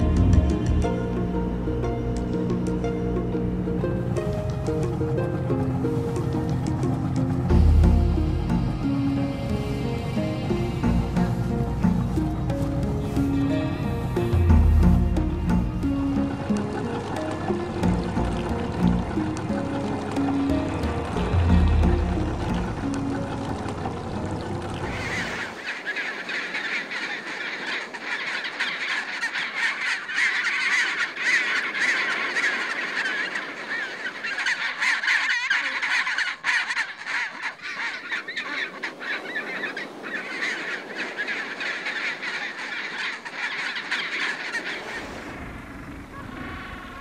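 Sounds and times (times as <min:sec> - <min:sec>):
penguin colony calling: 0:00.0 - 0:01.0, 0:03.8 - 0:47.0
low rumble: 0:00.0 - 0:25.1.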